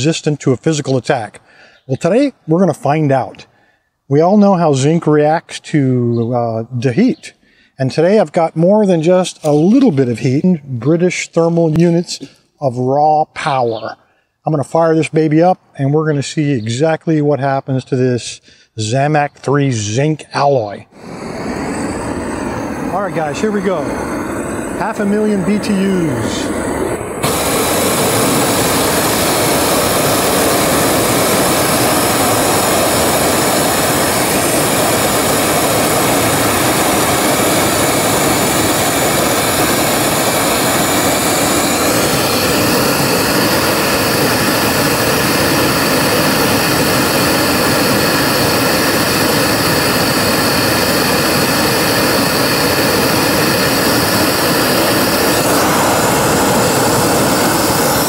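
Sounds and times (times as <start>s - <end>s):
propane torch flame rushing: 9.0s - 10.4s, 20.9s - 58.0s.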